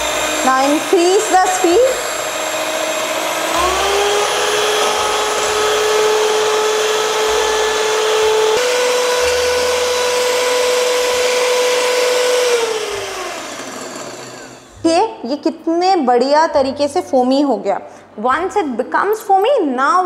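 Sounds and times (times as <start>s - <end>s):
electric hand mixer whining: 0.0s - 14.9s.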